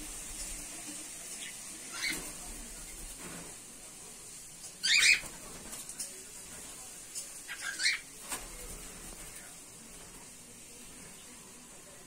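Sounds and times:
cockatiels calling: 1.4s - 2.3s, 4.8s - 5.3s, 7.5s - 8.1s.

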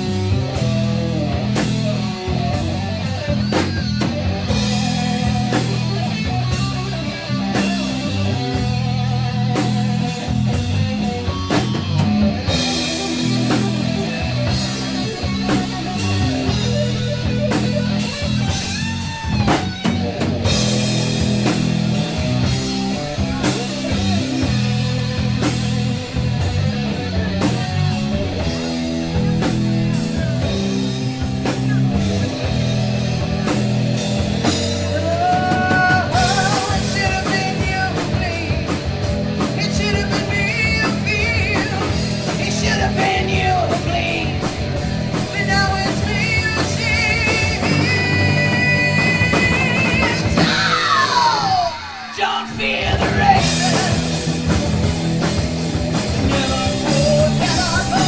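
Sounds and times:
drum kit: 0.0s - 58.0s
electric guitar: 0.0s - 58.0s.

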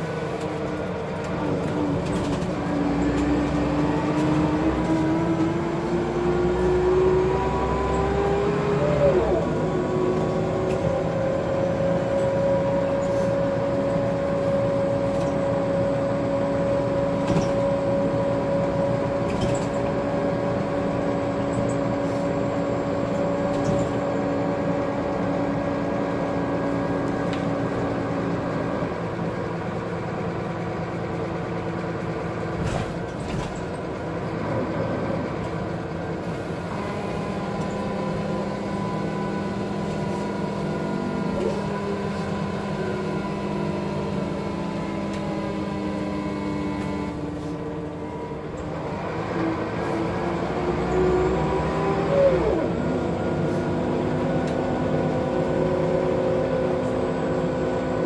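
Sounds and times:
bus engine running: 0.0s - 58.0s.

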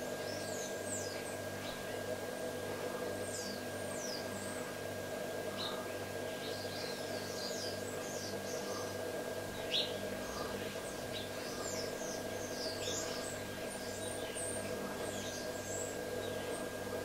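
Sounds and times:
birds chirping: 5.5s - 16.8s.

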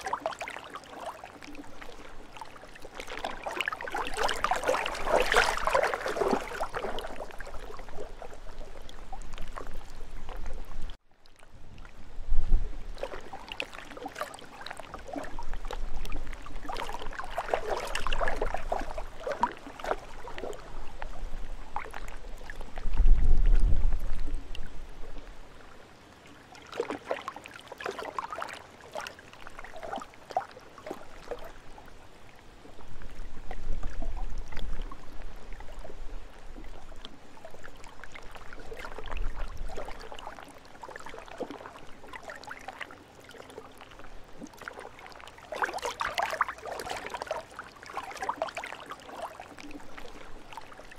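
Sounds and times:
waves lapping against shore: 0.0s - 50.9s
wind rumbling on microphone: 4.0s - 13.6s, 14.8s - 25.7s, 31.6s - 40.4s.

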